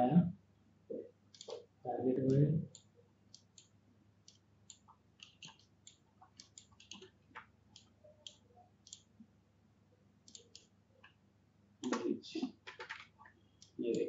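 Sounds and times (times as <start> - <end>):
computer mouse clicking: 1.3 - 1.7, 2.3 - 9.1, 10.2 - 11.2, 11.8 - 14.0.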